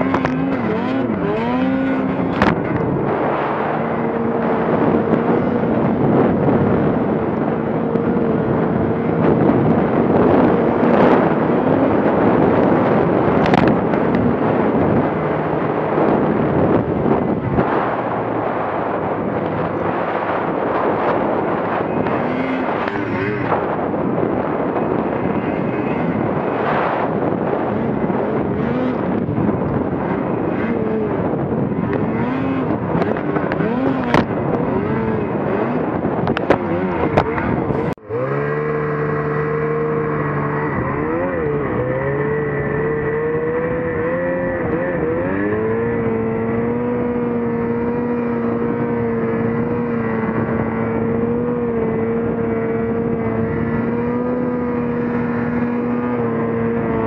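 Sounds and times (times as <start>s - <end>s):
snowmobile engine running hard: 0.0s - 57.0s.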